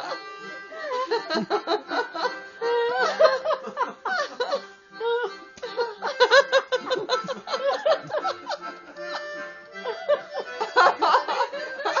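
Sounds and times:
background music: 0:00.0 - 0:12.0
audience laughing: 0:06.0 - 0:12.0.

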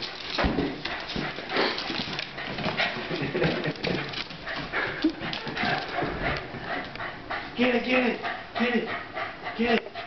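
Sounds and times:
dog scuffling with balloons: 0:00.0 - 0:06.8.

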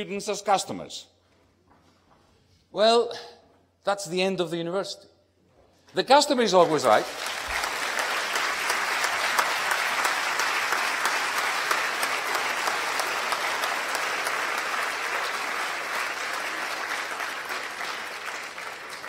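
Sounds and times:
audience applauding: 0:06.4 - 0:19.0.

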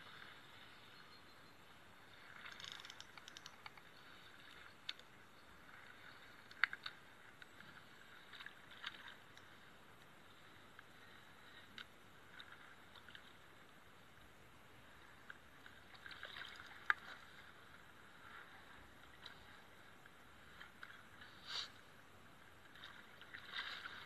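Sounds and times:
faint steady hiss: 0:00.0 - 0:24.0
fishing reel clicks and ticks: 0:02.5 - 0:03.9.

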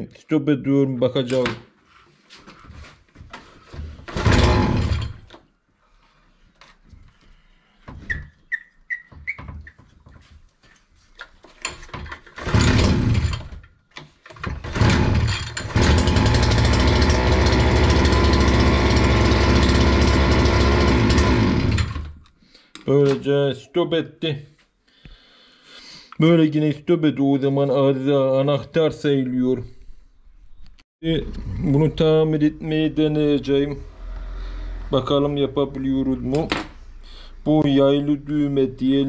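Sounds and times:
two-stroke brushcutter engine: 0:04.1 - 0:05.2, 0:12.4 - 0:13.4, 0:14.6 - 0:22.1.

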